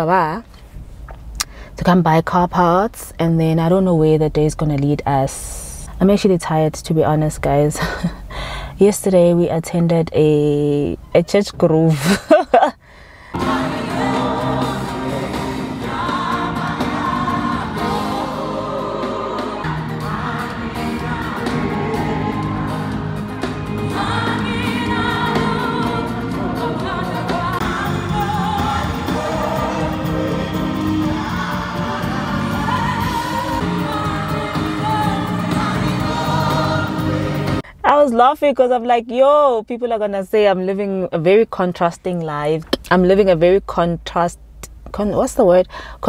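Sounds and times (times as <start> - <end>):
choir singing gospel music: 13.4 - 37.6
instrumental backing: 13.4 - 37.6.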